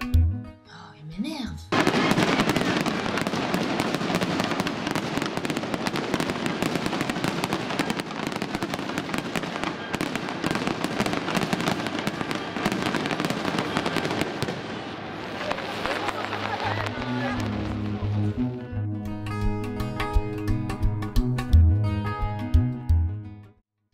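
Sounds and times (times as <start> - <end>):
fireworks popping and crackling: 1.7 - 18.1.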